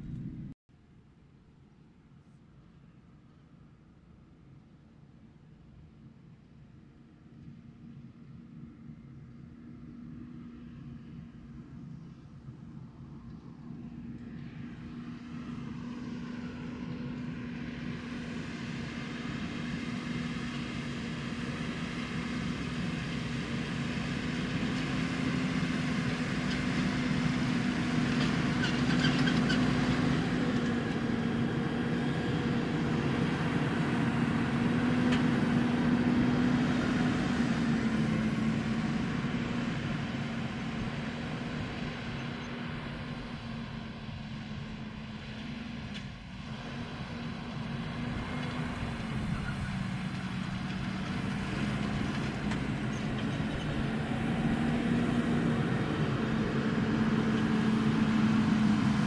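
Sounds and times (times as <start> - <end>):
tractor diesel engine under load: 0.0 - 0.6, 6.4 - 59.0.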